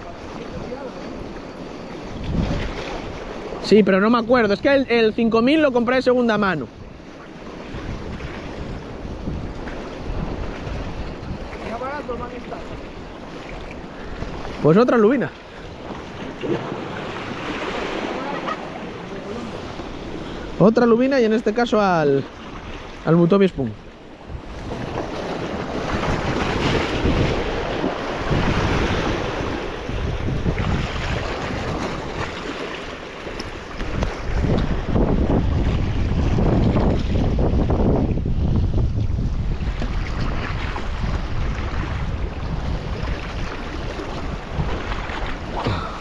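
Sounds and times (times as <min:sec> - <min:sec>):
wind on microphone: 0:00.0 - 0:21.7, 0:23.6 - 0:46.0
surf washing over rocks: 0:00.0 - 0:46.0.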